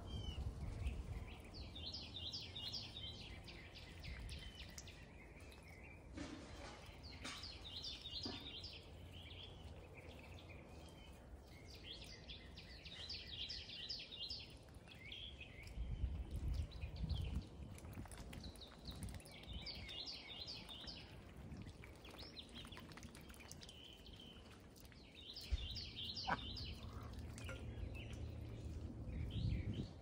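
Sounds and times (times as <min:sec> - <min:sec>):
low rumbling background noise: 0:00.0 - 0:30.0
songbird warbling: 0:25.4 - 0:28.2.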